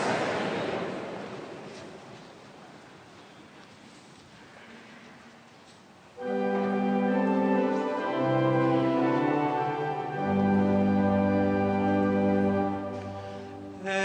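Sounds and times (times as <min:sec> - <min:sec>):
church organ chords: 0:06.2 - 0:14.0.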